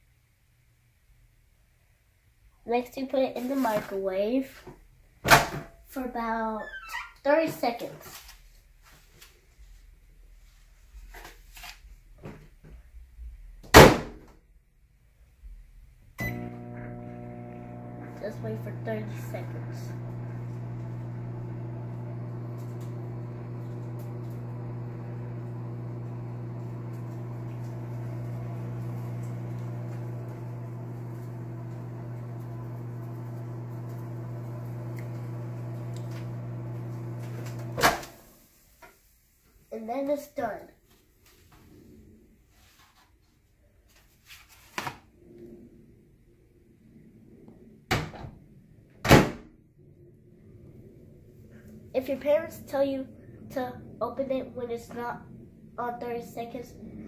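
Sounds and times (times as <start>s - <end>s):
microwave oven humming: 16.2s - 38.2s.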